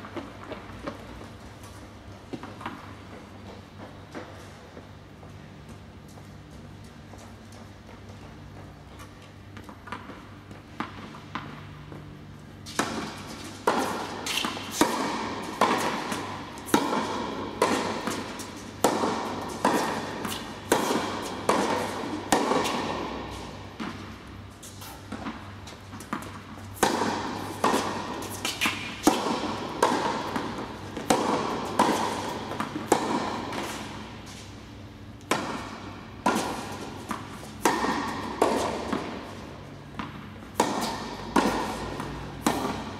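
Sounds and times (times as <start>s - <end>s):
tennis ball hit by rackets: 10.8s - 42.9s.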